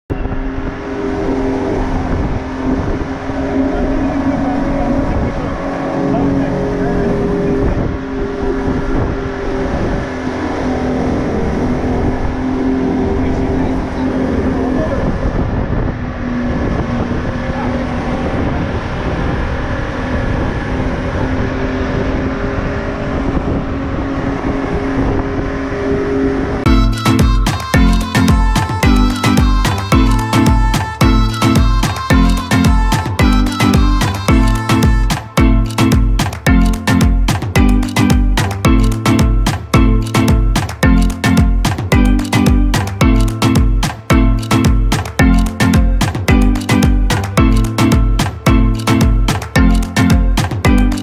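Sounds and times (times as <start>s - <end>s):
wind: 0.0s - 51.0s
boat engine running: 0.1s - 51.0s
wake rushing through choppy sea: 0.2s - 26.7s.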